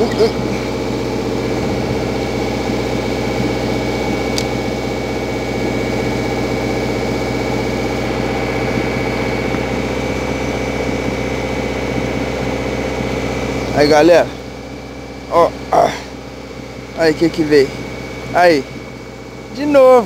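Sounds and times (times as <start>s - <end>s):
engine hum: 0.0s - 20.0s
sharp click: 4.3s - 4.6s.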